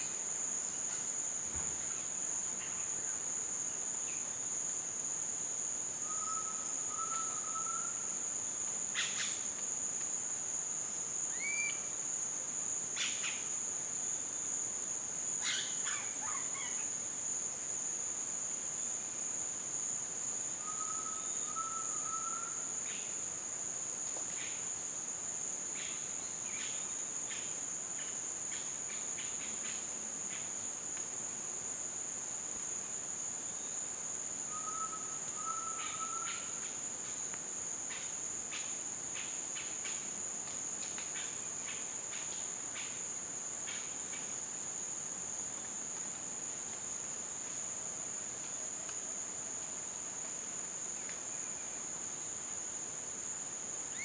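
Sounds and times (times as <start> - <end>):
faint rising whistles: 20.6 - 22.5, 34.5 - 36.3.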